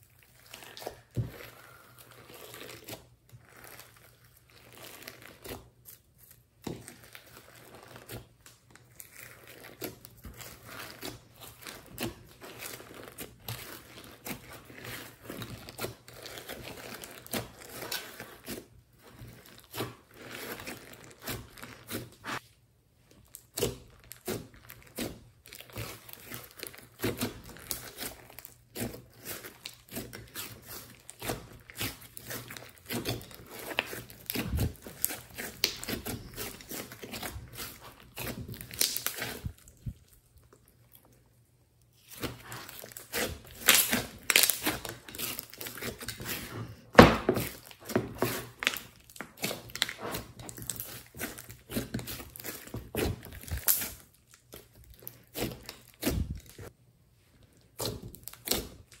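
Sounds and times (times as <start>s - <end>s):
slime squelching and crackling: 0.0s - 59.0s.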